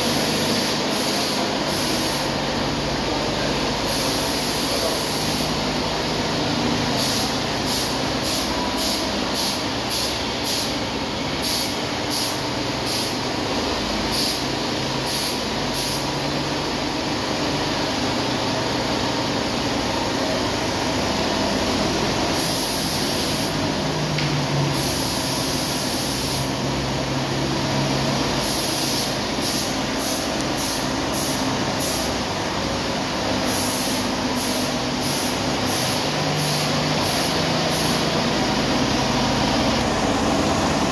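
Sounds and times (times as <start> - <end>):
spray gun hissing: 0.0 - 2.5, 3.9 - 5.8, 6.9 - 13.3, 14.0 - 16.2, 22.3 - 23.7, 24.7 - 26.6, 28.2 - 32.4, 33.0 - 39.4
paint spray rig running: 0.0 - 40.9.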